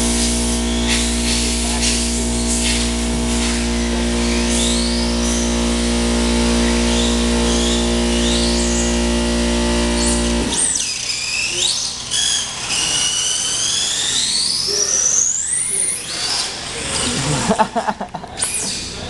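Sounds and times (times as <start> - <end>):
steady low hum: 0.0 - 10.8
electric motors whining: 0.0 - 17.6.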